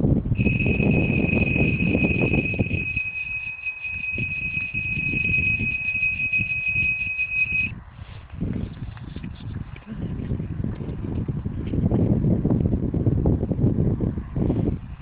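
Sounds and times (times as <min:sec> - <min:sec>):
wind buffeting microphone: 0:00.0 - 0:15.0
high-pitched whistling tone: 0:00.4 - 0:07.7.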